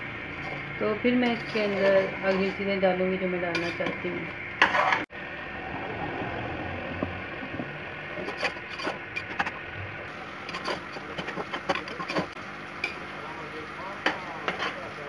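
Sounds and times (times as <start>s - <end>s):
metal spoon scraping a pot: 0.2s - 2.8s, 3.5s - 5.1s, 8.1s - 9.6s, 10.5s - 12.4s.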